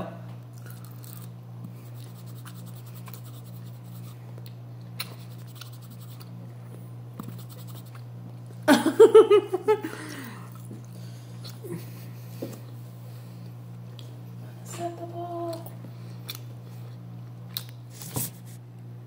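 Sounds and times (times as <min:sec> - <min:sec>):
wet chewing and lip-smacking: 0:00.6 - 0:06.4, 0:07.2 - 0:08.6, 0:15.5 - 0:17.8
person laughing: 0:08.7 - 0:10.5.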